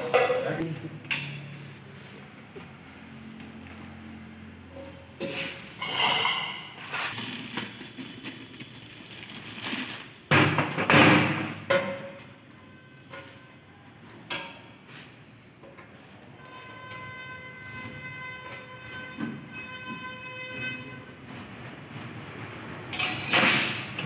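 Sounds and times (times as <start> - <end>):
tools clattering on metal housing: 5.3 - 6.8, 22.9 - 24.0.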